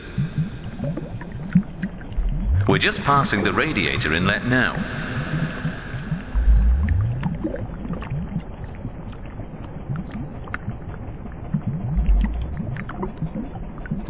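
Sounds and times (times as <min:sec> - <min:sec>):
low bubbling gurgles: 0:00.0 - 0:14.0
deep whoosh: 0:02.1 - 0:07.6, 0:11.9 - 0:12.7.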